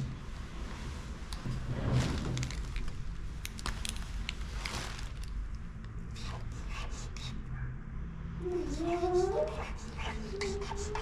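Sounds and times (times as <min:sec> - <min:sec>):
marker scratching on sticker: 0:08.6 - 0:11.0.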